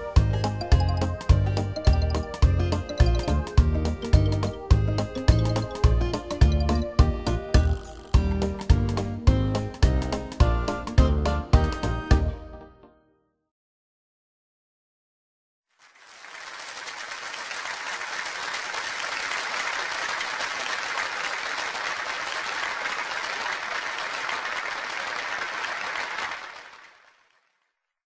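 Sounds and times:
crowd applause: 15.8 - 27.6.

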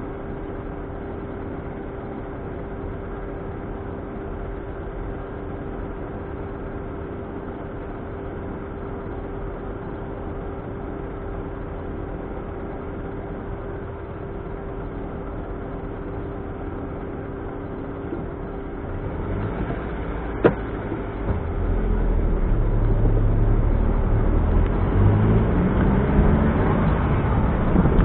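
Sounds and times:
car engine running: 0.0 - 28.0
road noise: 0.0 - 28.0.

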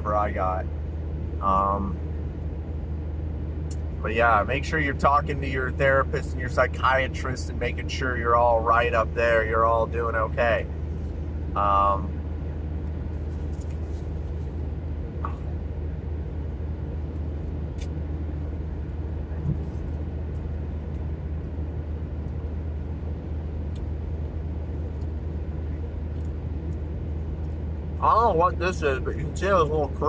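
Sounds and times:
car cabin road and engine drone: 0.0 - 30.0.

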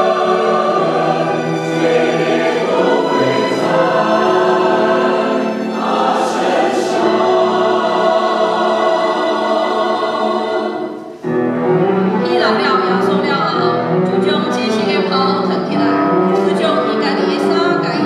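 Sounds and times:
choir singing a hymn: 0.0 - 11.3
violins: 0.0 - 18.0.

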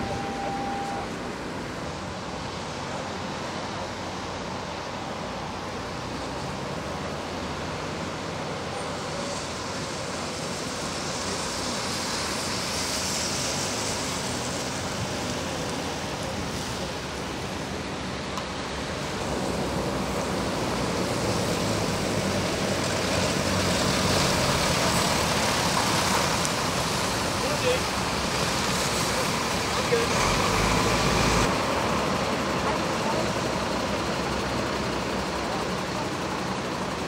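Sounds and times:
diesel engine running: 0.0 - 12.7, 13.3 - 37.0
tyres hissing on wet road: 0.0 - 37.0.

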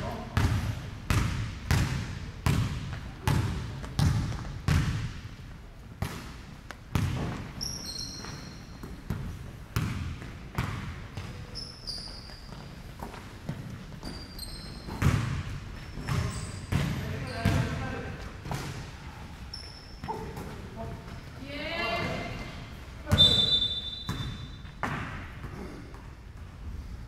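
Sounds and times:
basketball bouncing on wooden floor: 0.4 - 5.1, 6.9 - 7.6, 9.1 - 11.4, 13.0 - 18.7, 23.1 - 25.3
sneakers squeaking on floor: 6.9 - 25.8.

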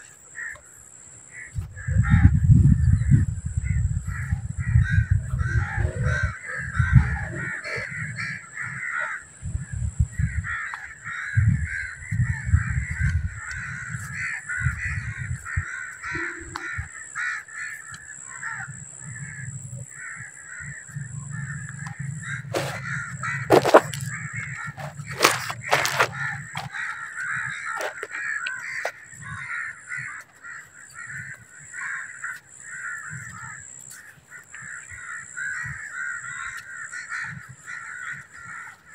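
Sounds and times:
birds chattering: 0.0 - 38.9
wind rumbling on microphone: 1.3 - 38.9
high whine: 2.6 - 10.1, 18.6 - 28.1.

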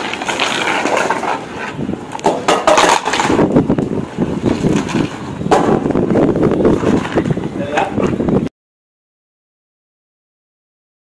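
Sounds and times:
hard roll knocking on concrete: 0.0 - 3.6, 4.4 - 6.0.

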